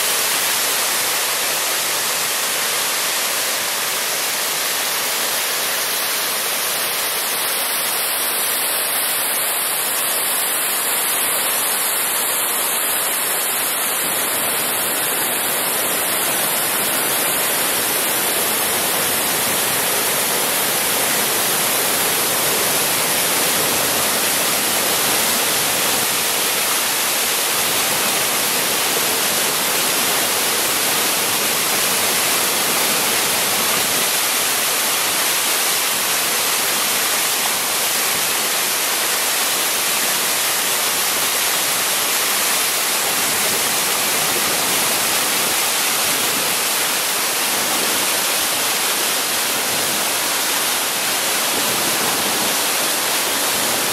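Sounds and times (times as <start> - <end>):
waterfall rushing into a pool: 0.0 - 53.9.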